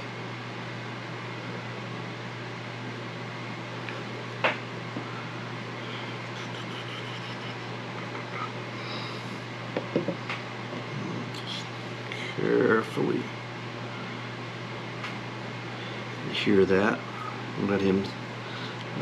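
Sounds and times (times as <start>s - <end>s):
room hum and hiss: 0.0s - 19.0s.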